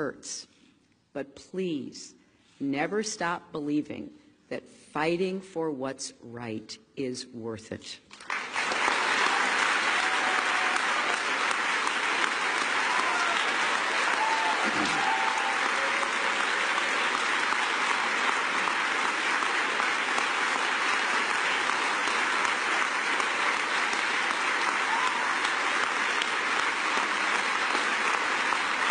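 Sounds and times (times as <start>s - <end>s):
audience applauding: 8.2s - 28.9s.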